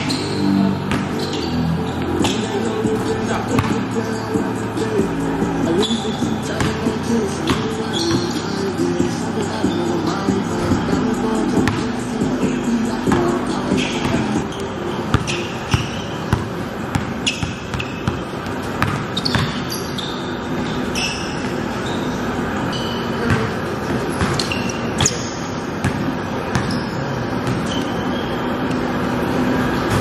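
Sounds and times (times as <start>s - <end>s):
sneakers squeaking on floor: 0.0s - 30.0s
basketball bouncing on wood: 18.8s - 19.6s.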